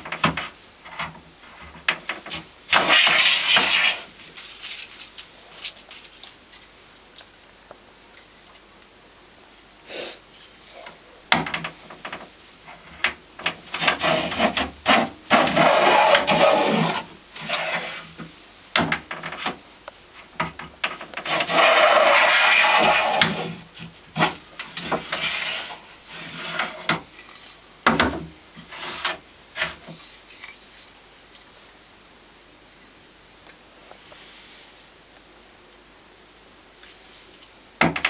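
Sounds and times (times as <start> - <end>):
hand plane scraping wood: 1.6 - 4.1, 13.7 - 18.1, 21.2 - 23.6, 24.2 - 27.0, 28.6 - 29.9.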